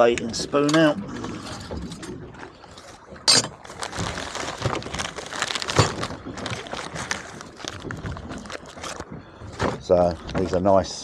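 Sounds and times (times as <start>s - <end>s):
plastic packaging crinkling: 3.5s - 10.5s.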